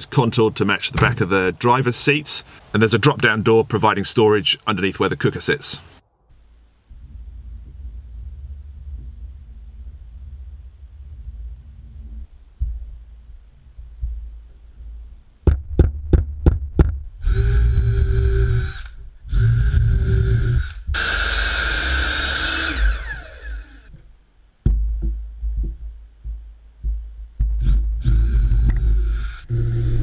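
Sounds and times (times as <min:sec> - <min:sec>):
sharp knocks: 0:01.0 - 0:01.2, 0:15.4 - 0:17.1, 0:23.9 - 0:28.0
drill boring into plywood: 0:17.2 - 0:23.9, 0:27.6 - 0:30.0.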